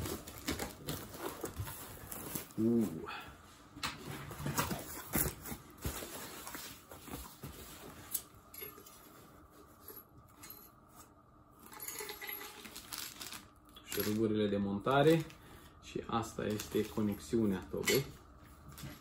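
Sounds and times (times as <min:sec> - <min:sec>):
rustling in cardboard box: 0:00.0 - 0:02.6, 0:04.2 - 0:08.1.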